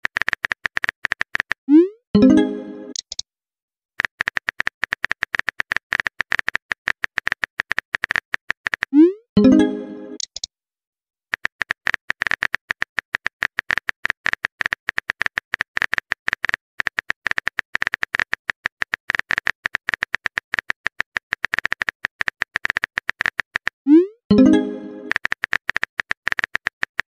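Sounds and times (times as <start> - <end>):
keyboard typing clicks: 2.2 - 3.2, 4.0 - 10.5.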